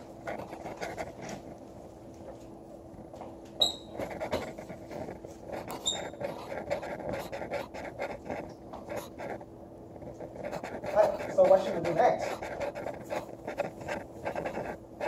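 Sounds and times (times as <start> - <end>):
marker scratching on whiteboard: 0.2 - 1.5, 3.6 - 15.0
marker squeaks: 3.6 - 9.4.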